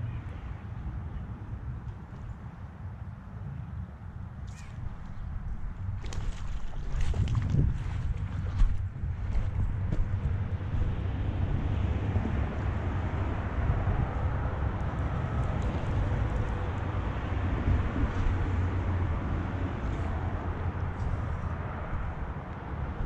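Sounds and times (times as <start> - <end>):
highway traffic: 0.0 - 23.0
wind buffeting microphone: 4.5 - 23.0
shallow stream rushing: 5.6 - 22.8.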